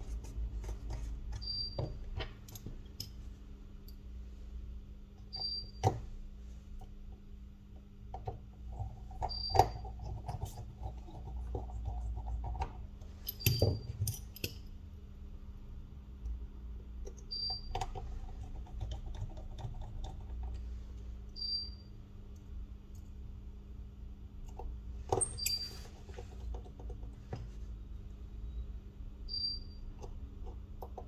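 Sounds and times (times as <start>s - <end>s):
tools and parts clicking and scraping: 0.6s - 4.0s, 8.9s - 14.8s, 24.5s - 27.5s.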